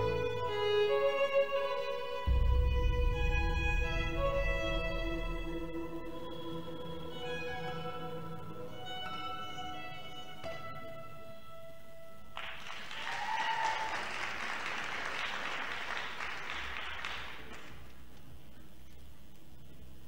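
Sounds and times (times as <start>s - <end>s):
string music: 0.0s - 12.4s
audience applauding: 12.4s - 18.2s.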